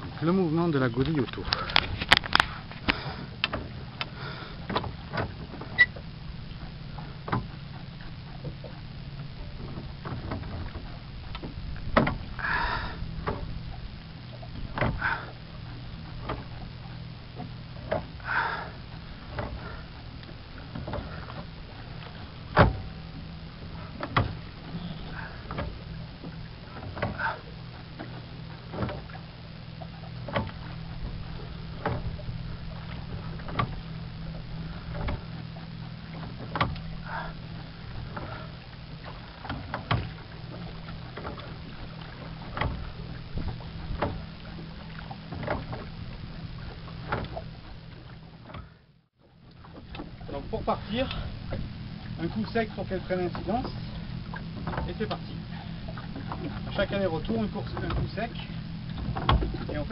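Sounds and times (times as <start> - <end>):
steady low hum: 0.0 - 59.9
oar mount knocking: 1.0 - 13.6, 14.3 - 15.4, 16.0 - 16.7, 17.4 - 29.2, 29.8 - 48.8, 49.4 - 59.9
wooden creak: 1.0 - 13.6, 17.4 - 48.8.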